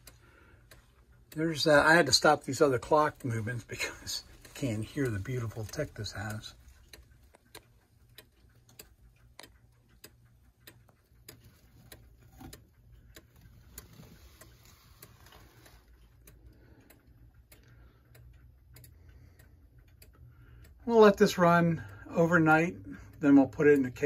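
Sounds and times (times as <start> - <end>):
pendulum clock ticking: 0.0 - 24.0.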